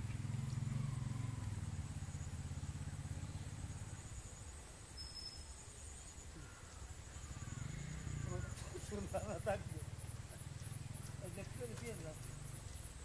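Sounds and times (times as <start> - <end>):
small engine running: 0.0 - 4.2, 7.3 - 13.0.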